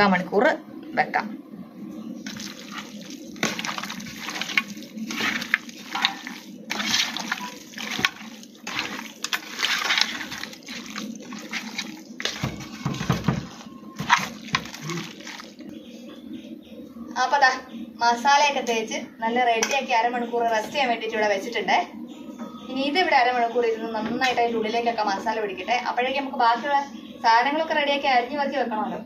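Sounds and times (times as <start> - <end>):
wet kneading of meat in bowl: 2.2 - 15.9.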